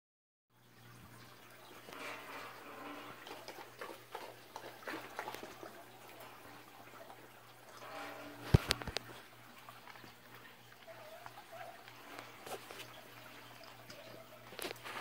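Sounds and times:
puppy whimpering: 10.8 - 12.9.

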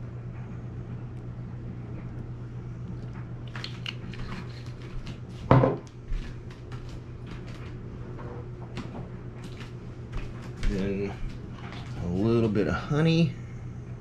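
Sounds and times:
steady low hum: 0.0 - 14.0
bottle knocking on wooden table: 5.5 - 5.8.

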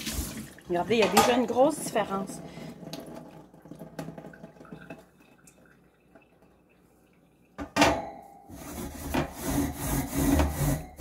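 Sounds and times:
oven rack clanking against sink: 0.9 - 1.6
steel wool scrubbing wire rack: 8.5 - 11.0.

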